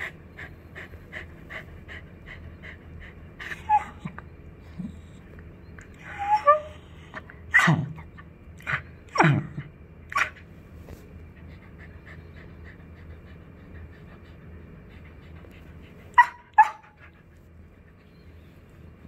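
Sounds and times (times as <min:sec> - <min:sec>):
puppy panting: 0:00.0 - 0:05.4, 0:11.1 - 0:19.0
puppy yips: 0:03.5 - 0:04.2, 0:06.0 - 0:06.9, 0:10.1 - 0:10.4, 0:16.2 - 0:17.0.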